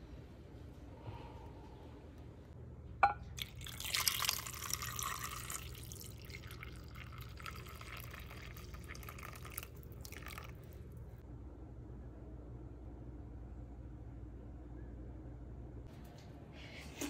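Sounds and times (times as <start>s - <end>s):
broth pouring into container: 3.4s - 11.0s.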